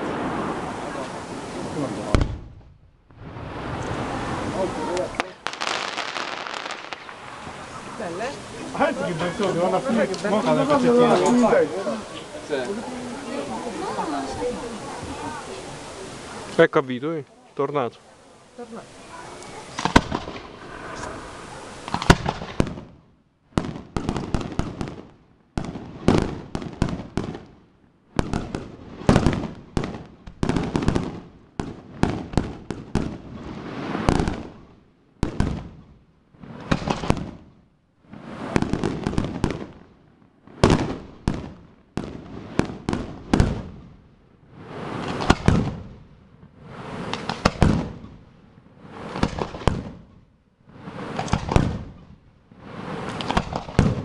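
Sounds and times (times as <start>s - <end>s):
firework crackling: 0.0s - 54.0s
firework shells bursting: 4.9s - 11.6s, 19.4s - 27.5s, 36.5s - 37.4s, 44.6s - 46.0s, 46.6s - 48.2s, 48.8s - 50.1s, 50.7s - 54.0s.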